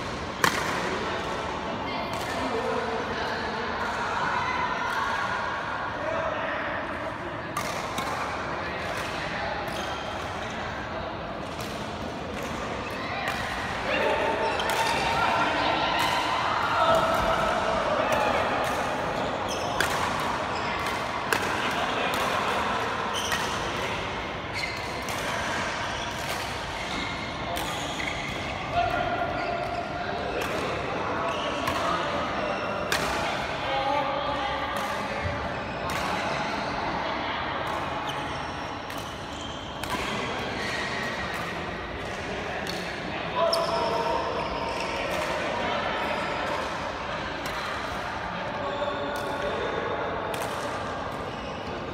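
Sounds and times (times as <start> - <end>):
voices in sports hall: 0.0 - 51.9
rackets striking shuttlecock: 0.4 - 0.9.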